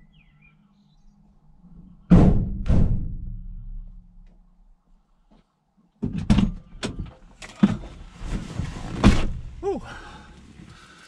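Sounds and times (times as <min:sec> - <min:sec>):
knocks and thuds in van: 0:02.1 - 0:04.0, 0:06.0 - 0:09.7
rustling: 0:07.5 - 0:09.6.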